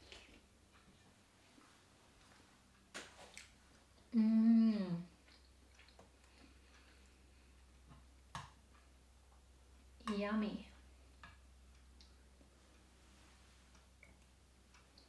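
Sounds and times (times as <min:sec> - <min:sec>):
woman humming with pleasure: 0:04.1 - 0:05.2.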